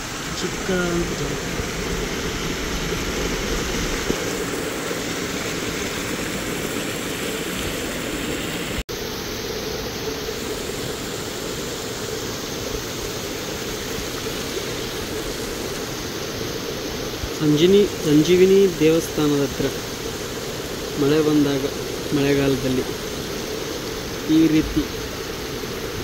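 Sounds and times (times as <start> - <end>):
water rushing over stone: 0.0 - 26.0.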